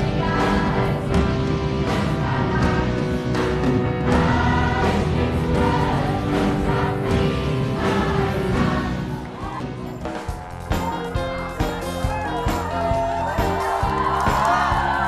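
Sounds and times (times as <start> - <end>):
young voices singing together: 0.0 - 9.9, 13.6 - 15.0.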